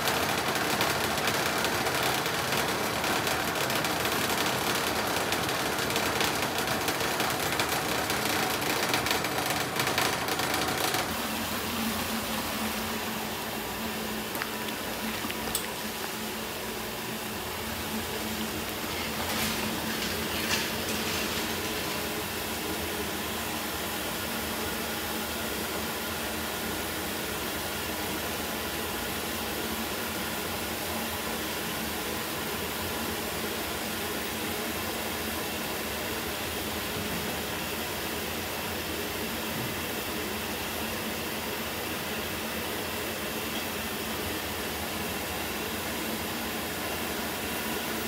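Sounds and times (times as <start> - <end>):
grinder humming: 0.0 - 22.4.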